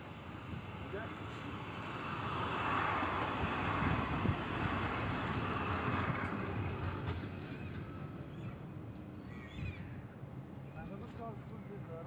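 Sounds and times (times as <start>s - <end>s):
wind on microphone: 3.4s - 6.8s.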